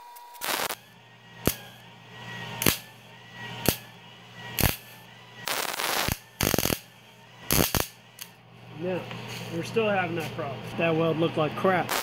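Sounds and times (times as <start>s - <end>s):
welder arc bursts: 0.0s - 1.8s, 2.6s - 8.3s
steady low hum: 0.0s - 12.0s.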